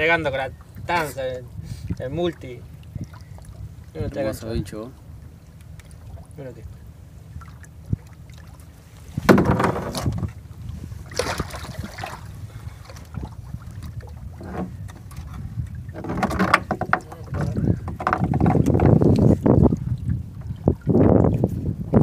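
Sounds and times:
water splashing: 0.0 - 21.5
wind rumble on microphone: 0.0 - 22.0
clatter against plastic kayak hull: 9.2 - 10.4, 14.4 - 19.3.

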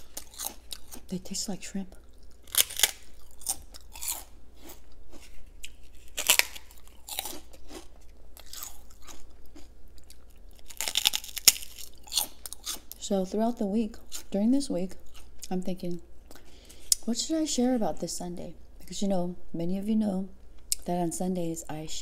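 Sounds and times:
crunching and chewing prawn crackers: 0.0 - 1.2, 2.0 - 13.0.

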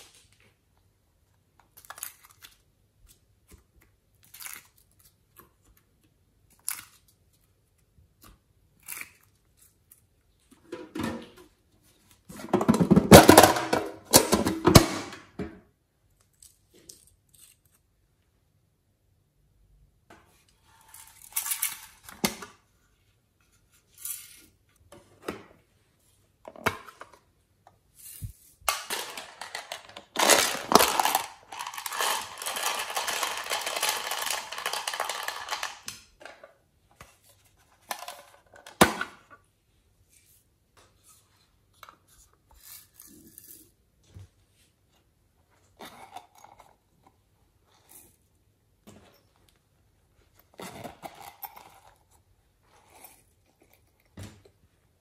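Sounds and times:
plastic containers clicking: 28.7 - 36.5
sprinkles rattling from container: 29.2 - 35.8.

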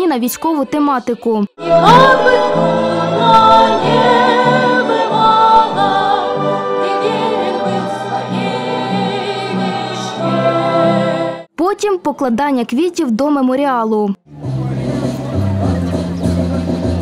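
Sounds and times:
low pulsing instrumental accompaniment: 1.6 - 11.2
women singing in harmony: 1.6 - 11.5.

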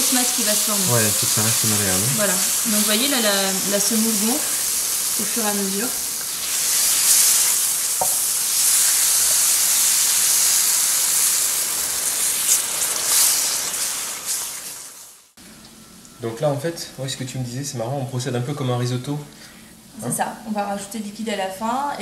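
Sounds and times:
semolina sizzling in frying pan: 0.0 - 16.3.

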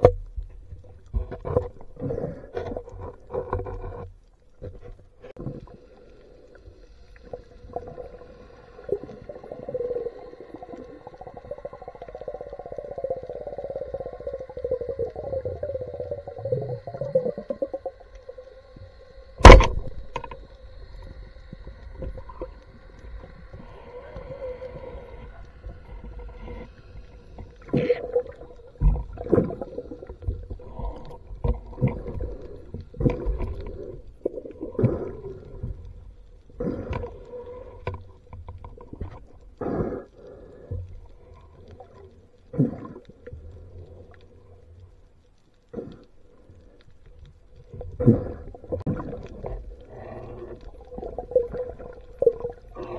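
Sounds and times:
steady underwater hum: 0.0 - 52.9
underwater gurgles: 0.0 - 52.9.

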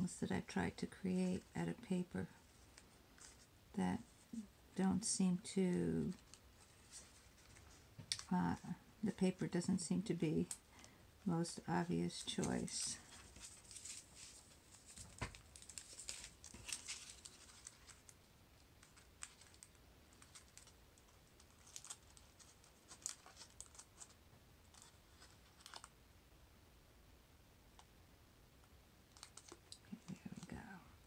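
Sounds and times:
stiff paper crinkling: 12.1 - 18.2, 18.8 - 25.9, 29.1 - 30.7.

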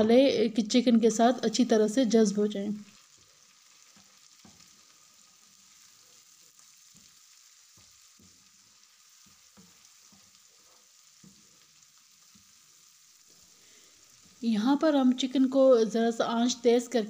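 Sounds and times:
chicken frying in oil: 0.0 - 17.0
wooden spatula scraping a pan: 3.1 - 14.5.

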